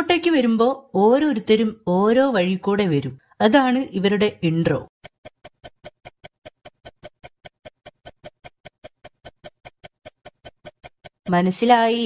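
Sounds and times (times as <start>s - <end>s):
clock ticking: 5.0s - 12.0s.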